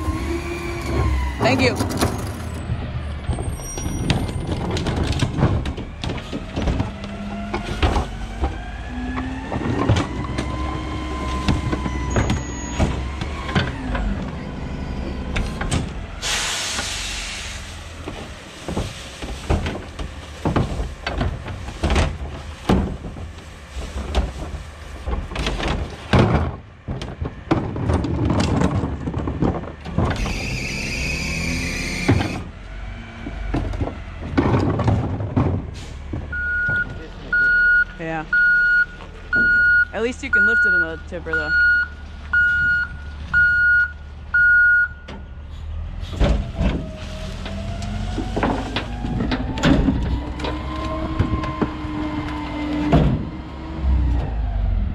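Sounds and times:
garbage truck engine rumbling: 0.0 - 54.9
plastic carts banging on hopper: 3.9 - 16.1, 17.9 - 30.4, 33.2 - 37.0.

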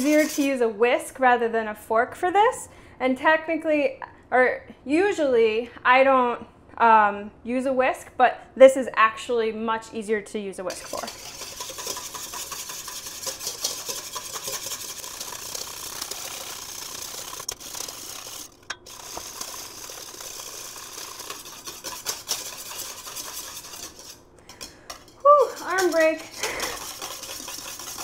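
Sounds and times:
whisk beating in metal bowl: 0.0 - 0.6, 10.7 - 28.0.

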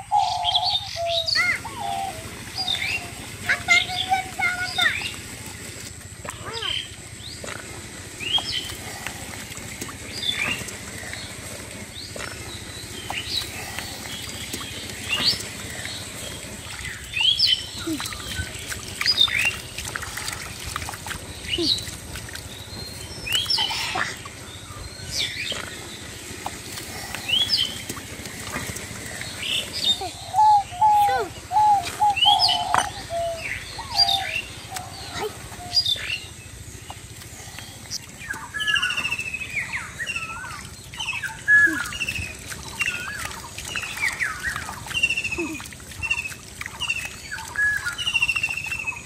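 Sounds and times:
small birds chirping: 0.0 - 49.0
bird cooing: 30.0 - 35.8.

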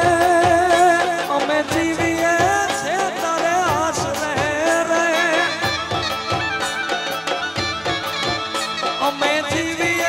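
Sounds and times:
steady drum beat: 0.0 - 10.0
wavering lead melody: 4.6 - 10.0.

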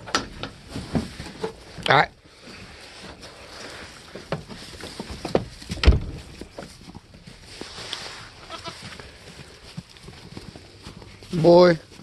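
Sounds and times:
goats rustling on straw: 0.6 - 12.0
knocks and thump: 4.2 - 6.7
faint goat bleat: 8.4 - 8.9.

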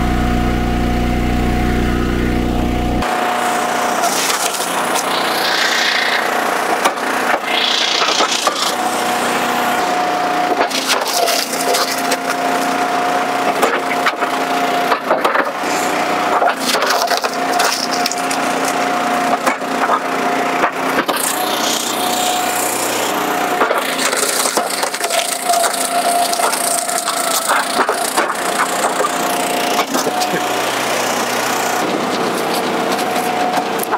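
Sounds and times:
thin steady whine: 0.0 - 14.3, 15.6 - 33.9
log splitter running: 0.0 - 33.9
wood cracking and splintering: 10.5 - 12.8, 13.4 - 22.2, 23.0 - 33.9.

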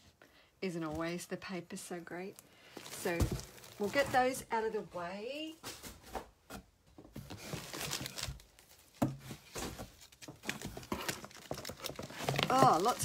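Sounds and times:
paper rustling and crinkling: 2.7 - 4.4, 7.1 - 13.0.

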